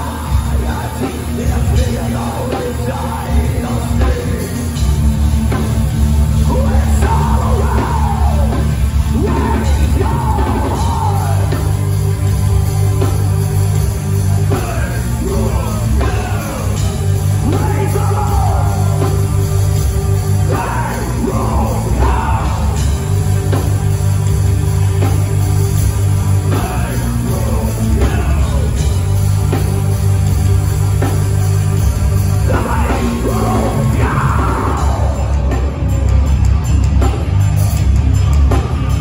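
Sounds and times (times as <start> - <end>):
singer shouting vocals: 0.0 - 4.8, 6.4 - 11.9, 14.4 - 19.5, 20.3 - 23.2, 26.4 - 29.2, 32.3 - 35.8
live metal band playing: 0.0 - 39.0.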